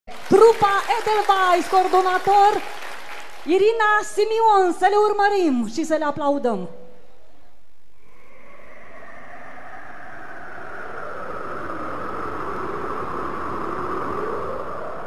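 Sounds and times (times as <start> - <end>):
whooshing wind-like noise: 8.0 - 15.0.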